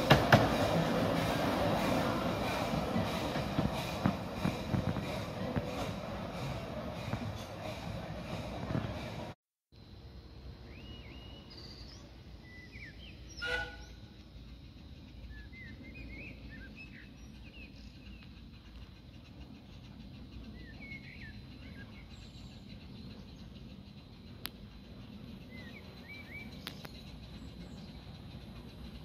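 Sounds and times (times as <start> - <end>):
small birds chirping: 10.7 - 29.0.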